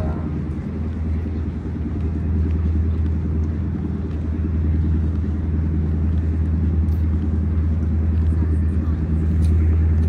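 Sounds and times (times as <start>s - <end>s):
large engine droning: 0.0s - 10.0s.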